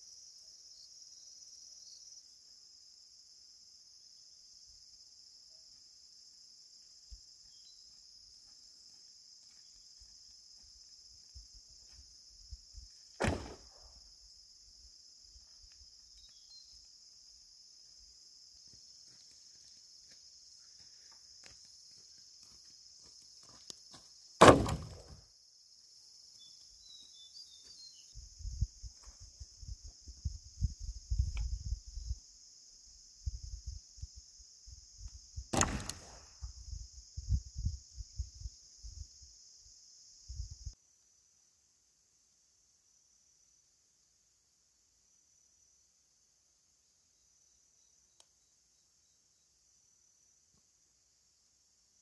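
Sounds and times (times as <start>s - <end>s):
insects chirring: 0.0s - 52.0s
loud sharp knocks: 24.4s - 25.2s.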